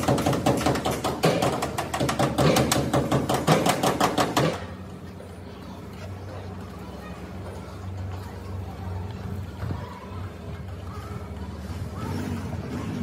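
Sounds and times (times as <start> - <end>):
rapid hammering: 0.0 - 4.7.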